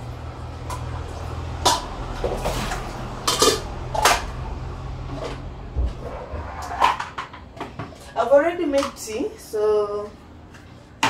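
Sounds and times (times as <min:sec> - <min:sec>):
low steady hum: 0:00.0 - 0:11.0
kitchenware clattering at a sink: 0:01.6 - 0:04.3.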